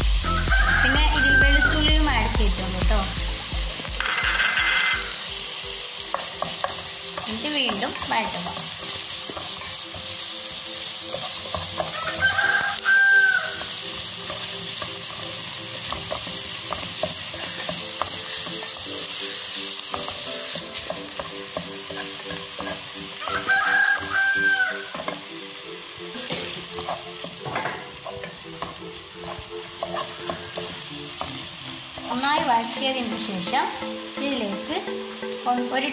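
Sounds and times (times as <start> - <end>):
food sizzling in a pan: 0.0 - 35.9
spatula scraping a pan: 11.0 - 25.3, 26.1 - 32.2.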